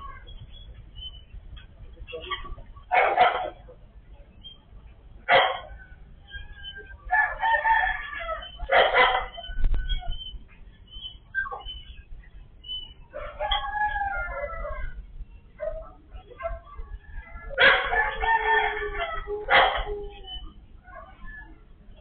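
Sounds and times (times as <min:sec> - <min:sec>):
roosters crowing: 0:05.6 - 0:10.4, 0:12.8 - 0:21.7.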